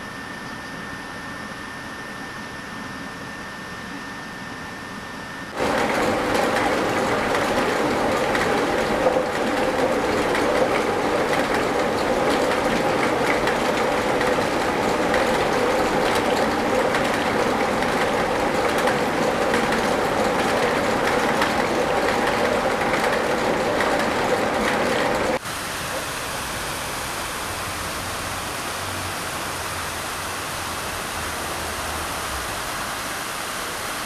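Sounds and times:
mill grinding and clattering: 0:05.6 - 0:25.4.

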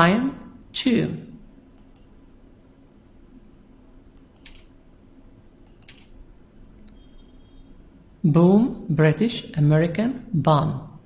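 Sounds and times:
faint low hum: 0:00.0 - 0:11.0
computer mouse clicks: 0:01.8 - 0:02.1, 0:04.1 - 0:04.7, 0:05.6 - 0:06.1.

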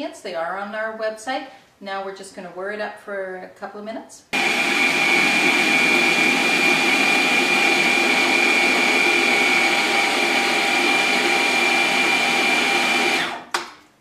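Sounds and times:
food processor motor running: 0:04.4 - 0:13.5.

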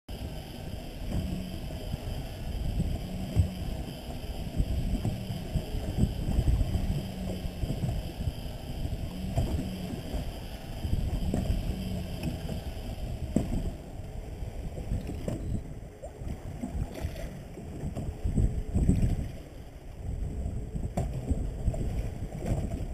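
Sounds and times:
wind rushing over microphone: 0:00.1 - 0:22.9
water slapping against boat hull: 0:09.2 - 0:10.3, 0:11.0 - 0:13.8, 0:20.9 - 0:22.9.

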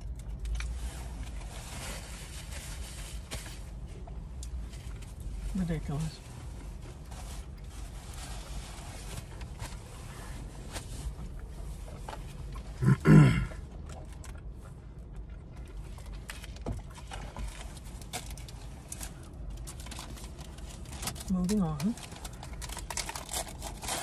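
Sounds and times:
clicks and rustles of eating: 0:00.0 - 0:05.5, 0:06.3 - 0:12.8, 0:13.6 - 0:24.0
low steady hum: 0:00.0 - 0:24.0
loud guttural grunt: 0:12.8 - 0:13.6.

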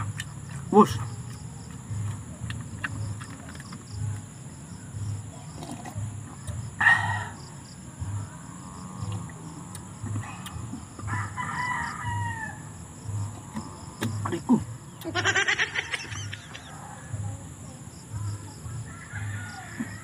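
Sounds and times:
rooster crowing: 0:11.0 - 0:12.8, 0:18.8 - 0:20.0.

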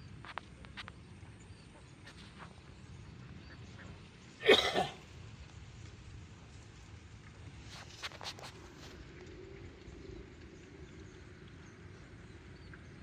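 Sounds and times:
faint outdoor background: 0:00.0 - 0:13.0
man coughing: 0:04.4 - 0:05.0.

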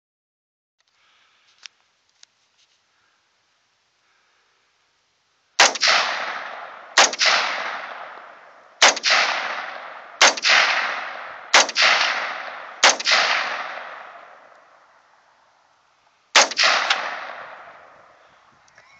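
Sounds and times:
rifle shots with echo: 0:05.6 - 0:15.0, 0:16.4 - 0:18.2.

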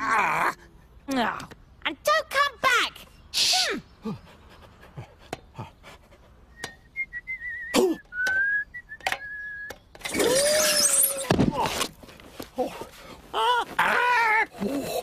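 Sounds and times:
person whistling a tune: 0:06.5 - 0:09.8.

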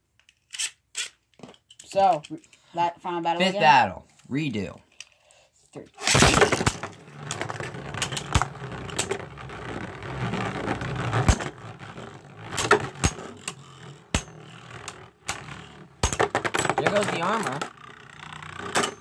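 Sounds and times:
spinning tops launched clattering: 0:06.0 - 0:09.3, 0:10.7 - 0:11.7, 0:12.4 - 0:19.0
spinning tops whirring: 0:06.0 - 0:19.0
spinning tops clacking together: 0:12.5 - 0:19.0.

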